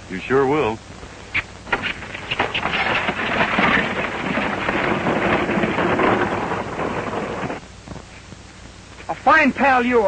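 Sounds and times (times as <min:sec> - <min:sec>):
wagon wheels rattling: 0:01.7 - 0:07.6
hoofbeats clattering: 0:01.8 - 0:07.6.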